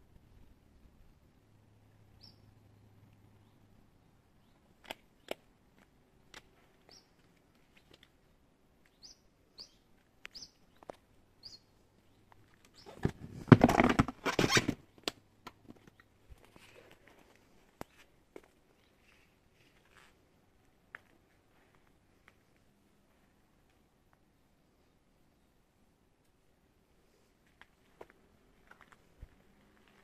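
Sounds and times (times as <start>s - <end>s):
high bird chirps: 2.2s - 2.5s, 8.9s - 11.7s.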